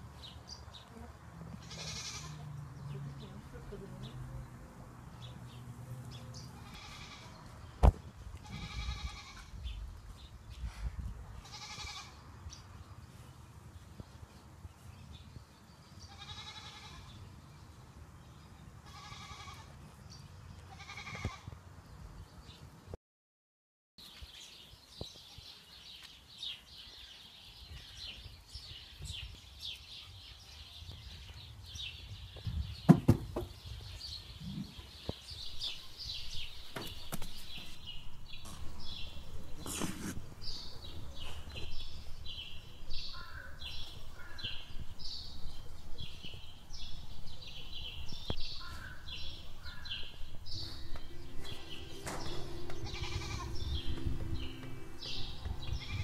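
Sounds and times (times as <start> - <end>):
high bleat-like animal calls: 1.6 - 2.4, 6.6 - 7.4, 8.4 - 9.5, 11.4 - 12.2, 16.1 - 17.2, 18.8 - 19.8, 20.7 - 21.5, 52.7 - 53.7, 55.7 - 56.0
high-pitched bird chirping: 49.7 - 56.0.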